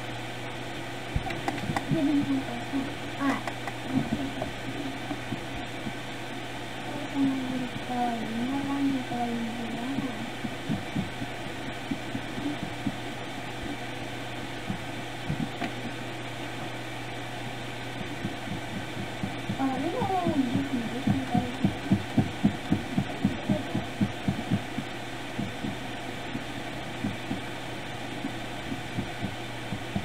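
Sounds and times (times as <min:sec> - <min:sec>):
steady low hum: 0:00.0 - 0:30.0
pencil tapping on paper: 0:01.2 - 0:02.1, 0:14.7 - 0:15.8
person humming: 0:01.7 - 0:05.4, 0:12.0 - 0:12.9.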